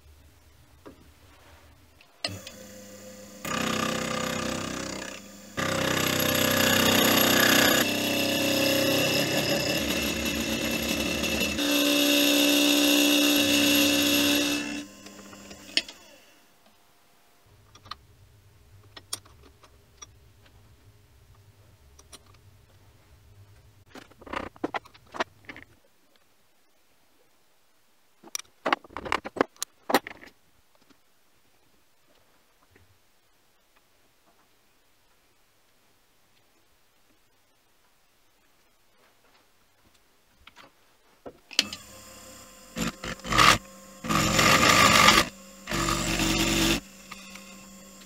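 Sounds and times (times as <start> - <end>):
milling machine spindle whining: 2.3 - 16.3, 41.6 - 48.0.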